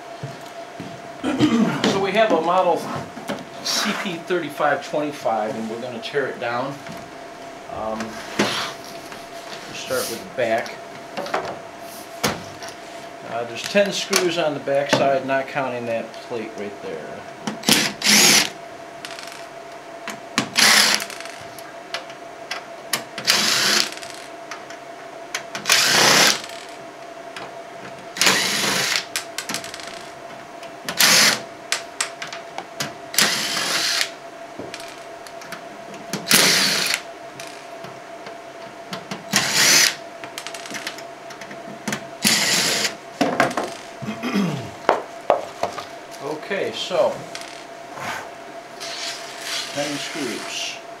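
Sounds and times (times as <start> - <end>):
faint steady hum: 0.0 - 51.0
power driver spinning screws: 17.6 - 18.5, 20.6 - 21.4, 23.2 - 24.2, 25.6 - 26.8, 28.2 - 29.1, 31.0 - 31.4, 33.2 - 34.1, 36.3 - 37.6, 39.3 - 40.7, 42.2 - 42.9.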